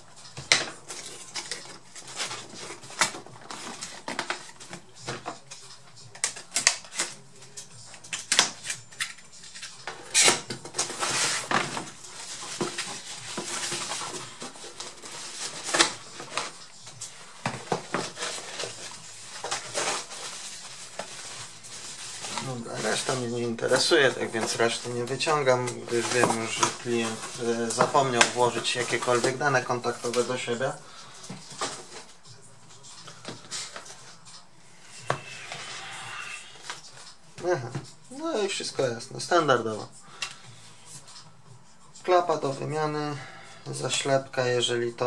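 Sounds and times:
paper rustling: 0.2s - 34.4s.

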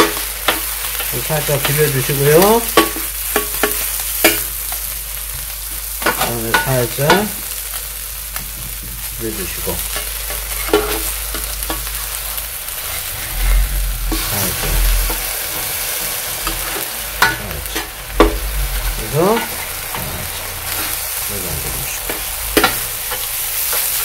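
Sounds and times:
meat sizzling on griddle: 0.0s - 24.0s
spatulas scraping and clacking: 9.9s - 12.0s, 12.8s - 24.0s.

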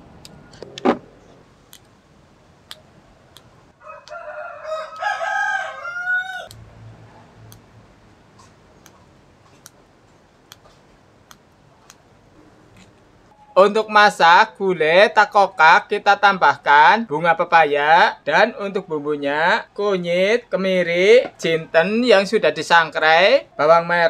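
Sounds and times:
rooster crowing: 3.8s - 6.6s.

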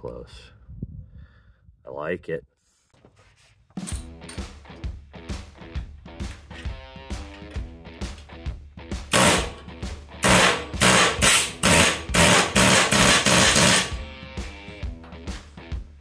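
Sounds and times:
rock guitar music: 3.9s - 16.0s.

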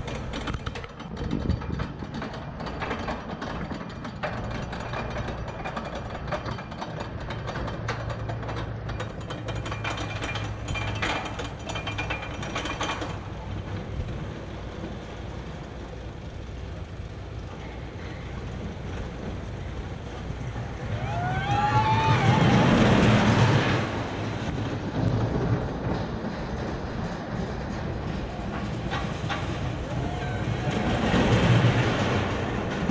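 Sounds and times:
chain lift ratchet clicking: 0.0s - 13.6s
coaster train running: 0.0s - 32.9s.

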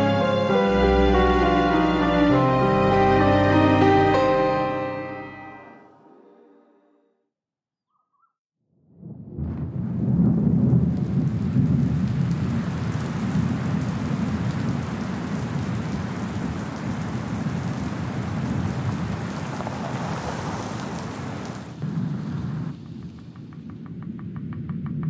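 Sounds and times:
low thunder rumble: 8.9s - 19.7s, 21.7s - 23.8s
heavy rain: 9.4s - 23.2s.

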